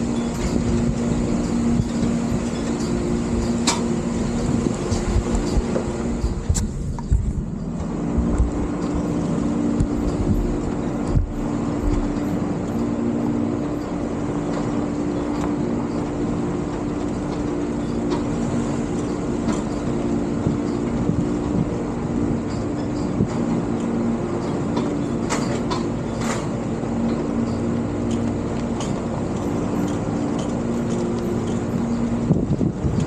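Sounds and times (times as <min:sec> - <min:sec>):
wind buffeting microphone: 0:00.0 - 0:13.8, 0:18.4 - 0:24.8, 0:29.0 - 0:33.0
car engine running: 0:00.0 - 0:33.0
tyres rumbling on gravel: 0:00.0 - 0:33.0.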